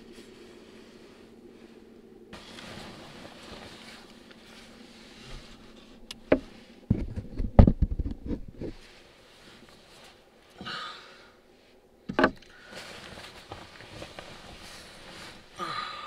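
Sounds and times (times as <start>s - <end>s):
sleeping bag fabric rustling: 0.0s - 6.8s, 12.6s - 15.8s
faint steady hiss: 0.0s - 7.0s, 8.6s - 16.0s.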